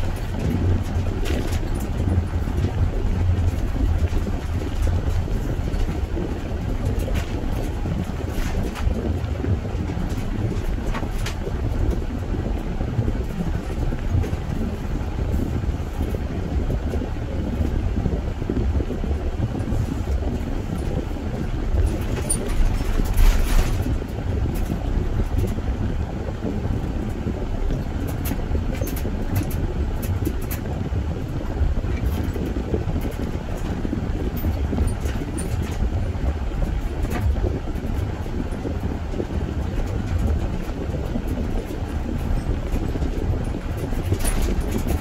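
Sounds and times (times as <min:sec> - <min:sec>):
car road and engine rumble: 0:00.0 - 0:45.0.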